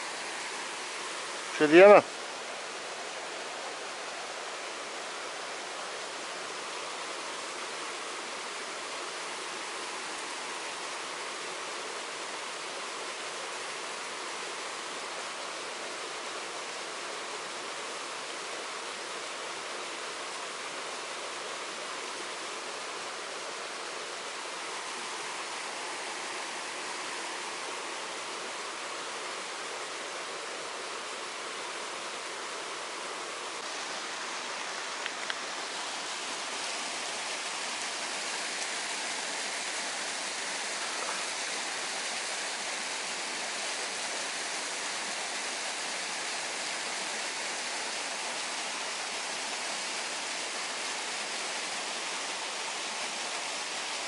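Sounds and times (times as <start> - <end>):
running water rushing: 0.0 - 54.0
faint clicks: 35.0 - 35.4.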